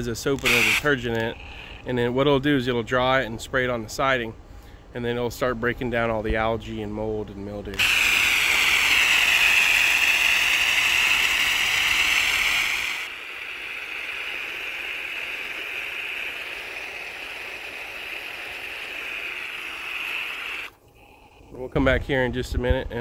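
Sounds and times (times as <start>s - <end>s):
spray hissing against siding: 0.0s - 1.9s, 7.8s - 20.8s.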